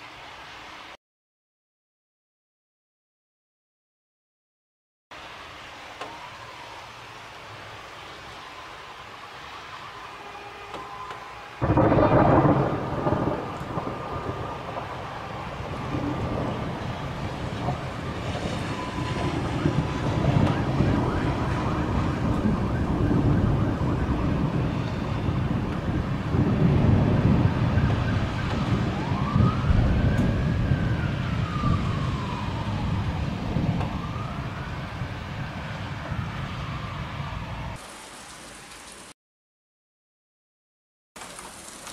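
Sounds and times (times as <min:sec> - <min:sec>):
rain: 0:00.0 - 0:01.0, 0:05.1 - 0:39.2, 0:41.2 - 0:41.9
emergency siren wailing: 0:05.6 - 0:37.8
thunder rumble: 0:11.6 - 0:37.8.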